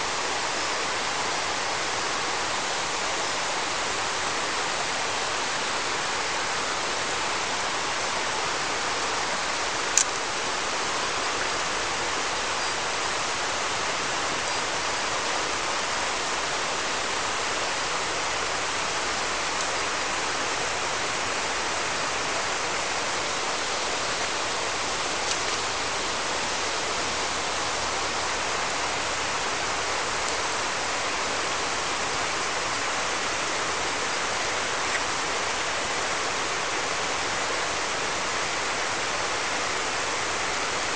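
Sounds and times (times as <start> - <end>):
river water running over stones: 0.0 - 40.9.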